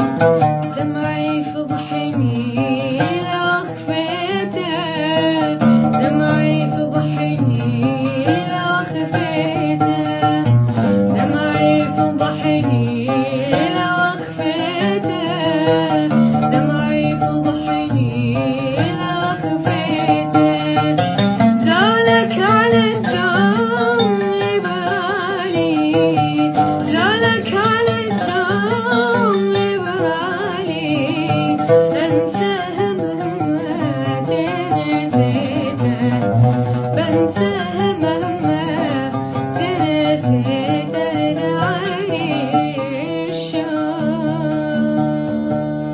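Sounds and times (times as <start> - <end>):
oud plucking: 0.0 - 45.9
boy singing: 0.8 - 10.5, 11.2 - 21.0.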